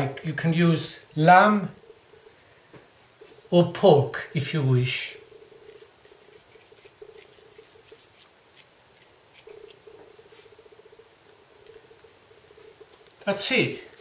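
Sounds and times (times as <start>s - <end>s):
hands rolling minced meat: 4.5s - 14.0s.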